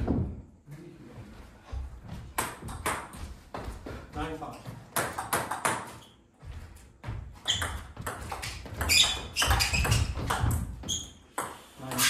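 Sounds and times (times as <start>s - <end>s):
footwork thumps: 1.2s - 11.2s
shoes squeaking on floor: 3.1s - 12.0s.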